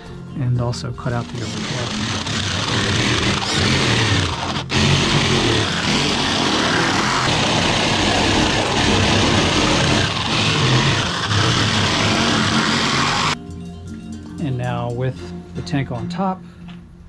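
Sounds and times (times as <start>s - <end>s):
jigsaw cutting board: 1.0s - 13.4s.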